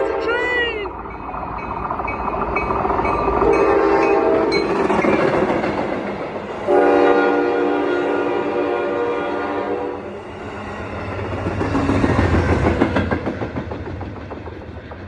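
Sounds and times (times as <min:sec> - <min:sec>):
train rumbling past: 0:00.0 - 0:15.0
train horn blasts: 0:03.4 - 0:04.6, 0:06.6 - 0:10.1.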